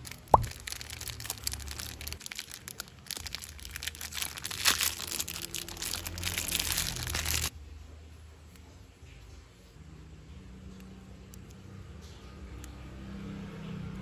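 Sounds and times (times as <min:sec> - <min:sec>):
plastic wrapping crinkling: 0:00.0 - 0:07.5.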